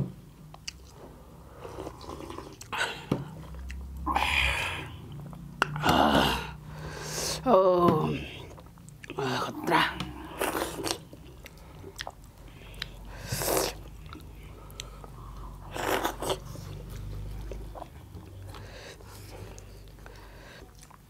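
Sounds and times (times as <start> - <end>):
chewing and mouth clicks: 0.4 - 1.1, 1.8 - 4.0, 8.5 - 9.2, 10.4 - 21.0.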